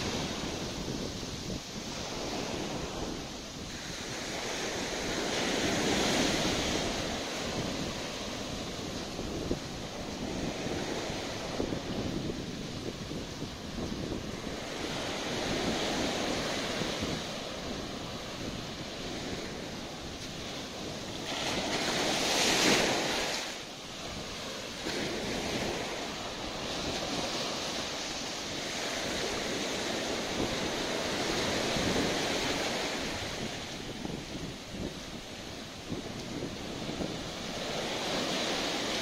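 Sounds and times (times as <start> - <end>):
ocean surf breaking on beach: 0.0 - 39.0.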